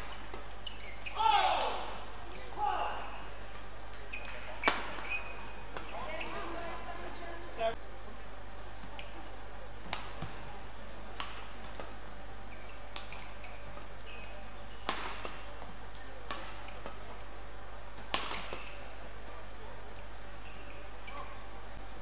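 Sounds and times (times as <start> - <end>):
shoes squeaking on court: 0.0 - 1.2, 2.3 - 7.1, 8.8 - 9.4, 11.2 - 17.3, 18.1 - 19.0, 20.3 - 21.5
rackets hitting shuttlecock: 0.0 - 6.4, 8.8 - 10.5, 11.1 - 12.0, 12.6 - 17.3, 18.0 - 18.9.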